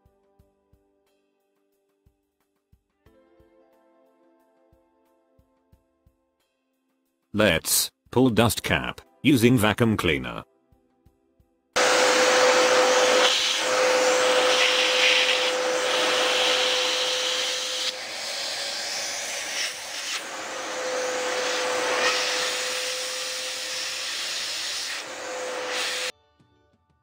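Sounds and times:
vacuum cleaner running: 11.8 - 26.1.

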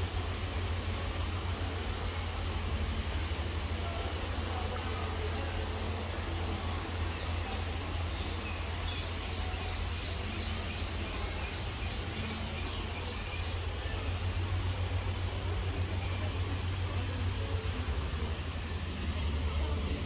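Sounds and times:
distant traffic rumble: 0.0 - 20.0.

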